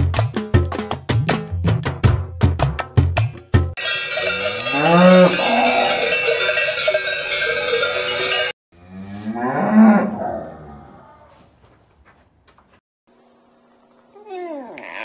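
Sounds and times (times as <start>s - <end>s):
cowbells ringing: 3.8s - 8.6s
cow mooing: 4.6s - 6.2s, 8.8s - 11.4s.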